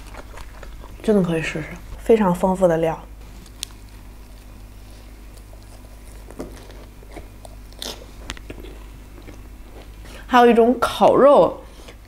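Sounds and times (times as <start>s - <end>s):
chewing crunchy food: 0.0s - 2.1s, 3.1s - 10.3s
low steady hum: 0.0s - 12.0s.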